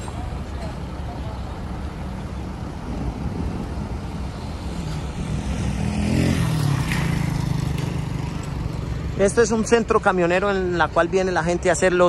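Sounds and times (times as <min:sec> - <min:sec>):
vehicle engines rumbling: 0:00.0 - 0:12.0.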